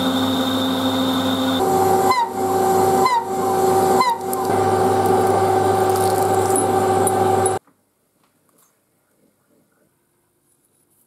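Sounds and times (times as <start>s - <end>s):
drill bit boring metal: 0.0s - 7.6s
metal lathe gear whine: 0.0s - 7.6s.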